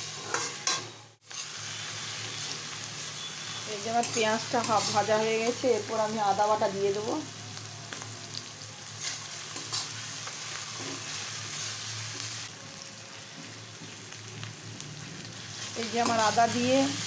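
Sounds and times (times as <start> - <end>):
metal spatula scraping pan: 0.0 - 5.2
onions sizzling in oil: 0.0 - 17.0.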